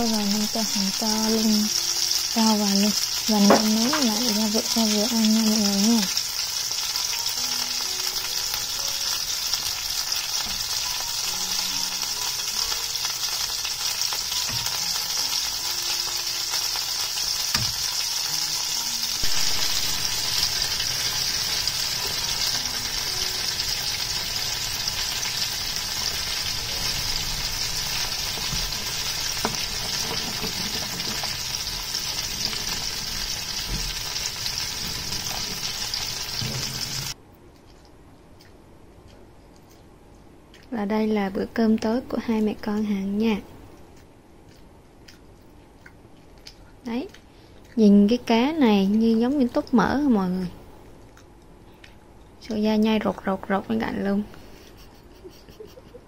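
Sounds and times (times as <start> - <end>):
soup boiling and bubbling: 10.7 - 37.2.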